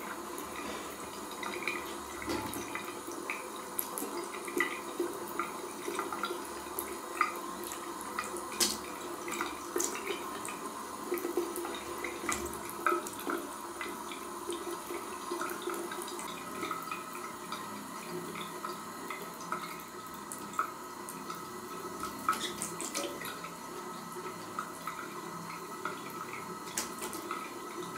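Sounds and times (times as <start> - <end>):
water stream splashing into bowl: 1.1 - 27.9
small splashes and clicks: 7.2 - 10.0, 22.0 - 23.4, 26.6 - 27.4.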